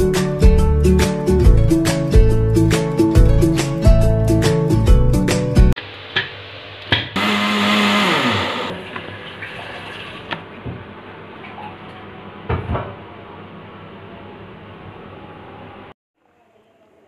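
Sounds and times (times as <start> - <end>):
electric blender motor spinning down: 7.2 - 8.8.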